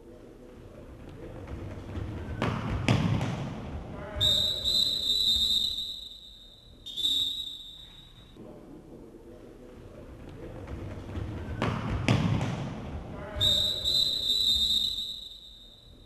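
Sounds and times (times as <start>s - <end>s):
referee's whistle blasts: 4.2s - 8.4s, 13.4s - 16.0s.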